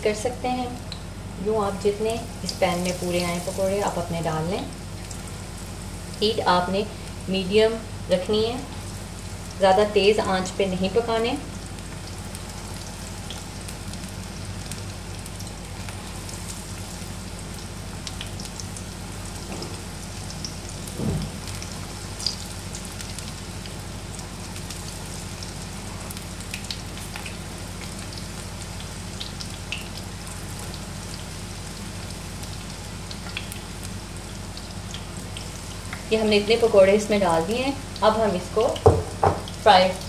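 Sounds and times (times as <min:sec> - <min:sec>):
food deep-frying in hot oil: 0:00.0 - 0:40.0
oil popping and crackling: 0:02.4 - 0:05.5, 0:11.5 - 0:36.7
low thud: 0:21.0 - 0:21.4.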